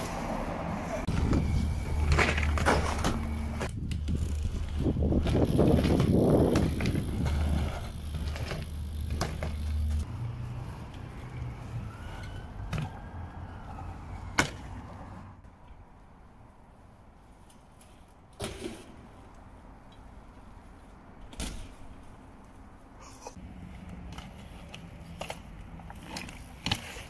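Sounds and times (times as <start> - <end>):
bike tyres rolling on pavement: 0.0 - 27.0
bike wheels knocking down: 1.2 - 10.0.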